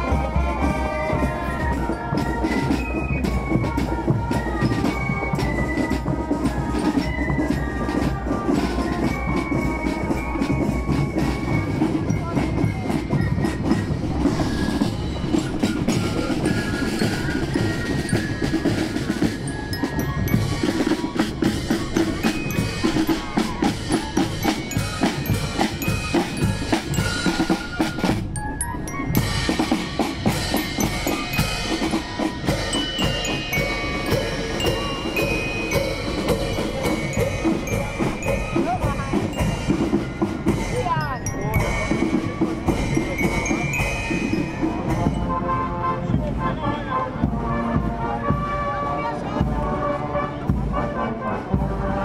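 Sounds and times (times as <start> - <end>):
glockenspiel: 0.0 - 47.4
snare and bass drums: 0.0 - 49.8
fife melody: 0.0 - 52.0.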